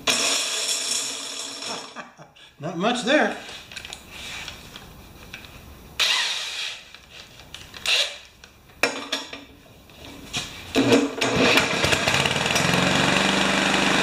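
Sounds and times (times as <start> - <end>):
electric drill running: 6.0 - 6.9, 11.4 - 14.0.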